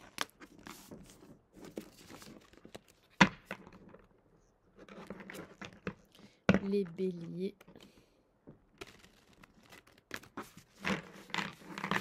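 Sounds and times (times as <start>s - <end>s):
cards being shuffled: 8.8s - 12.0s.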